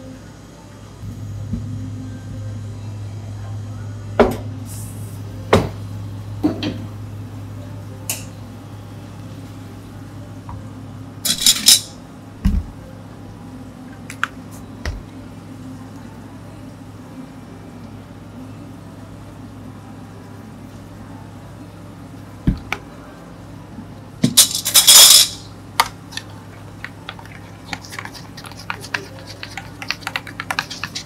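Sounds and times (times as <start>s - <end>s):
steady low hum: 0.0s - 31.0s
cups and utensils clinking: 24.2s - 31.0s
metal cup set on scale: 24.4s - 25.4s.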